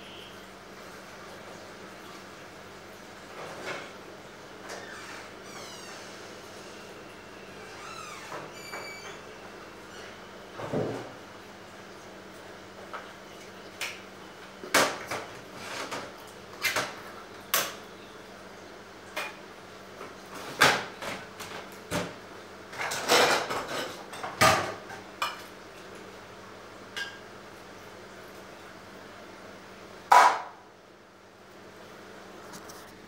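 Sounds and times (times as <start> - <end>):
faint steady hum: 0.0 - 33.0
dishes and utensils clattering: 22.7 - 25.5.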